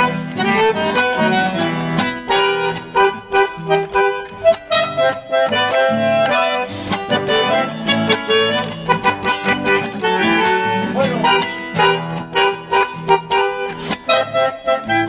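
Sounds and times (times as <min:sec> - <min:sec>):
bandoneon melody: 0:00.0 - 0:15.0
guitar strumming: 0:00.0 - 0:15.0.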